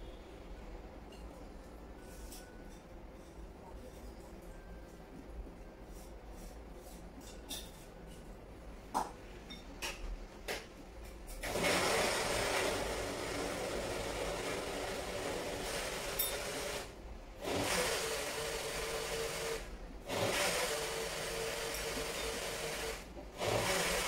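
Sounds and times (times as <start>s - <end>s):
electric blender running: 11.4s - 24.0s.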